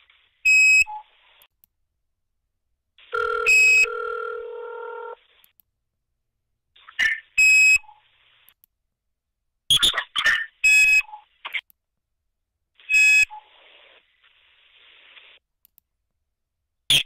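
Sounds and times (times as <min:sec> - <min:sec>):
steady phone line tone: 0:03.1 - 0:05.2.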